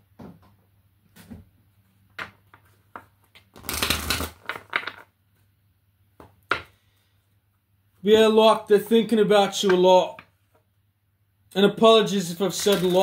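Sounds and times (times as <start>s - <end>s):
cards shuffling: 3.3s - 5.1s, 12.5s - 13.0s.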